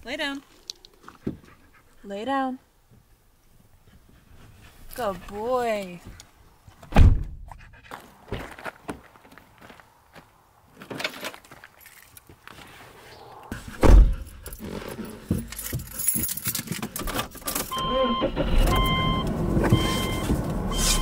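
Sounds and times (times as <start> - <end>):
car door slamming: 6.9 - 7.4, 13.7 - 14.3
low hum: 12.8 - 14.6
keys jangling: 14.2 - 17.7
car warning chime beeping: 17.7 - 21.0.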